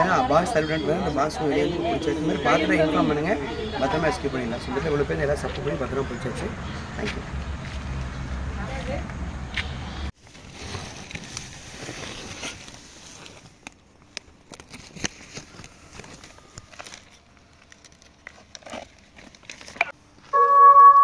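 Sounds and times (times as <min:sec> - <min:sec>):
plastic sack crinkling: 0:10.2 - 0:19.9.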